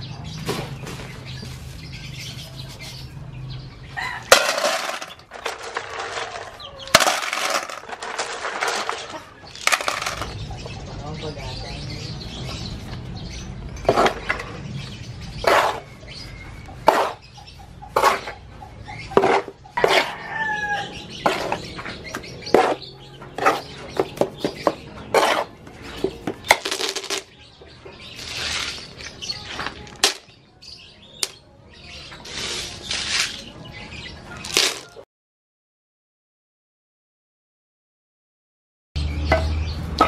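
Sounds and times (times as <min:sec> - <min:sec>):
trowel scraping cement mix: 0:15.4 - 0:15.9, 0:16.8 - 0:17.2, 0:17.9 - 0:18.4, 0:19.1 - 0:20.1, 0:21.2 - 0:21.7, 0:22.4 - 0:27.0, 0:28.2 - 0:29.0, 0:32.2 - 0:33.5.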